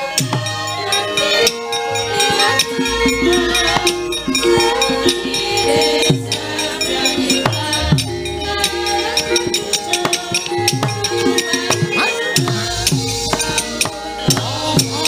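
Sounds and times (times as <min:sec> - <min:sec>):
sustained metallophone notes: 0:00.1 - 0:15.0
gamelan ensemble playing: 0:00.8 - 0:15.0
hand drum strokes falling in pitch: 0:02.4 - 0:12.7
deep low tone: 0:07.7 - 0:10.6.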